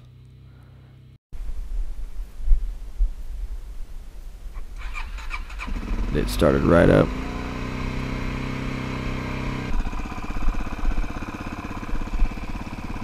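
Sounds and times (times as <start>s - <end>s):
motorcycle engine idling: 0.0s - 1.2s, 4.8s - 13.0s.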